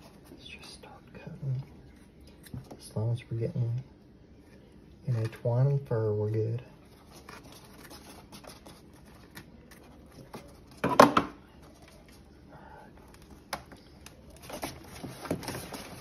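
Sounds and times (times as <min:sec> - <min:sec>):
handling rustle: 0:06.8 - 0:10.8, 0:14.1 - 0:16.0.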